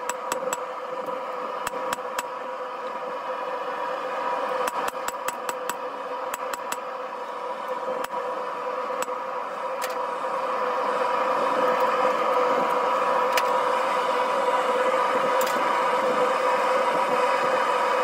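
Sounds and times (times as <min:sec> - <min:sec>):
forge burner rushing: 0:00.0 - 0:18.0.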